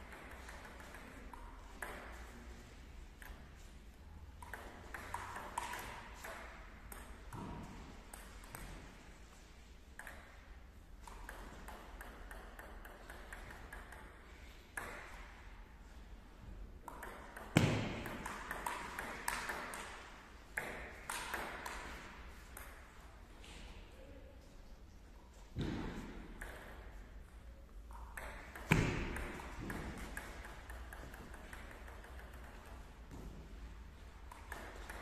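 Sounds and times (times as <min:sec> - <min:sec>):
table tennis ball clicking: 0:04.4 - 0:07.4, 0:10.0 - 0:15.2, 0:16.8 - 0:22.9, 0:27.8 - 0:33.2, 0:34.2 - 0:35.0.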